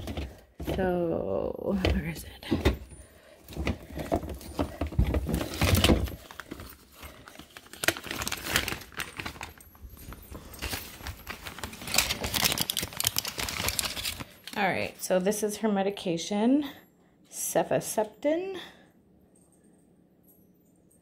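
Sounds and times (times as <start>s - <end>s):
plastic containers rattling: 0.0s - 14.6s.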